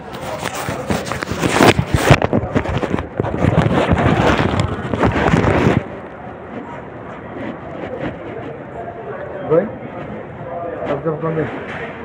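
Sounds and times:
phone microphone handling noise: 0.0s - 6.7s.

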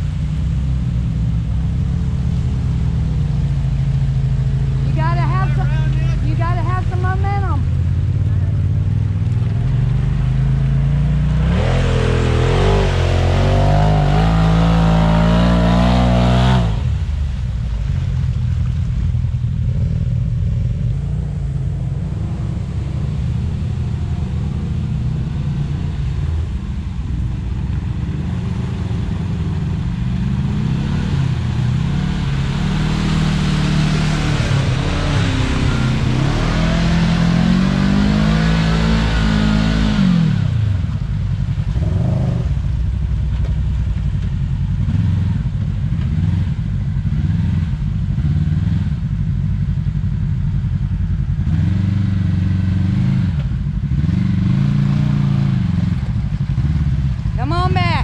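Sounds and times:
engine revving: 9.0s - 17.1s, 28.2s - 42.6s, 51.4s - 58.0s.

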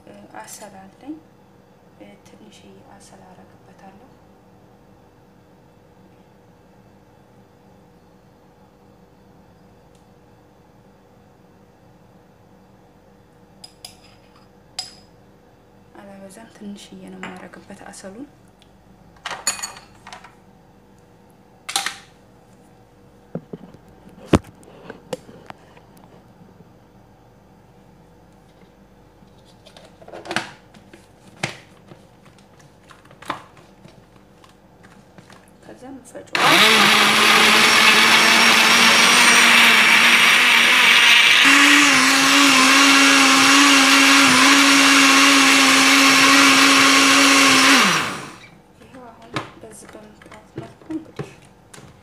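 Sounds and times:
electric blender running: 36.4s - 48.5s.

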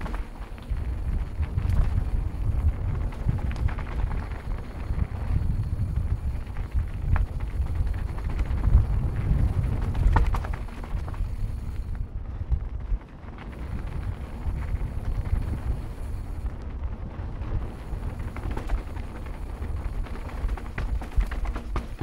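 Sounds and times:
bike clicks over bumps: 0.0s - 22.0s
bike tyres rumbling on dirt: 0.0s - 22.0s
wind buffeting microphone: 0.0s - 22.0s.

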